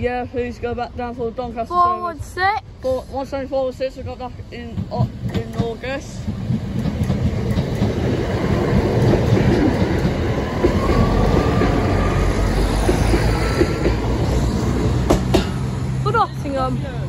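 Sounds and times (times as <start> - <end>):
train engines running: 0.0 - 17.0
train wheels clattering over rails: 4.0 - 16.2.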